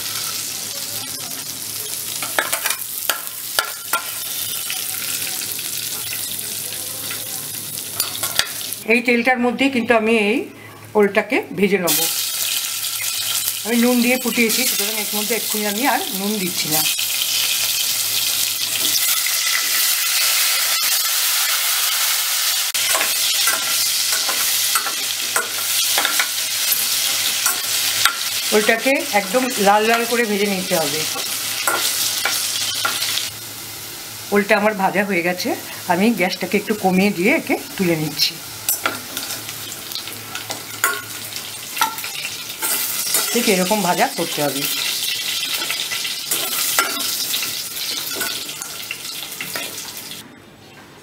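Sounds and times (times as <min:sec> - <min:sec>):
hot oil sizzling: 0:00.0 - 0:09.7, 0:11.6 - 0:50.3
metal spoon clinking: 0:08.0 - 0:08.6, 0:22.8 - 0:28.3, 0:31.1 - 0:33.1, 0:40.4 - 0:41.1, 0:41.8 - 0:43.5, 0:45.4 - 0:47.2, 0:47.8 - 0:49.8.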